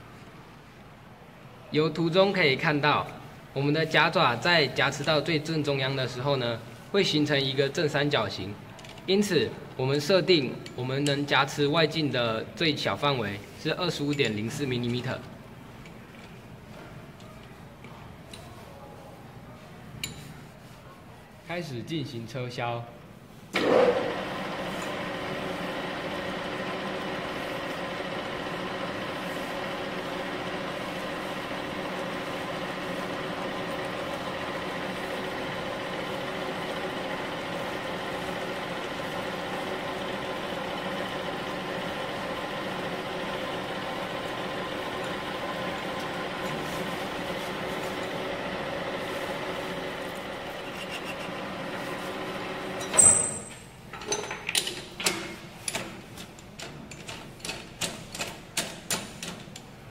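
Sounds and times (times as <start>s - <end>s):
lathe running: 23.6s - 53.0s
sharp clicks and knocks: 52.8s - 59.7s.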